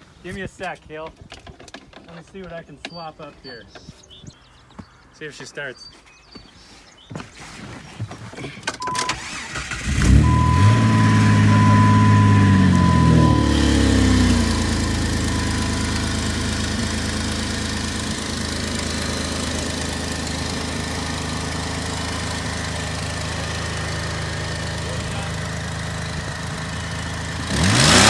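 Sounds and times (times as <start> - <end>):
high warning beep: 8.8 - 9.2, 10.1 - 16.1
car engine idling: 8.8 - 28.0.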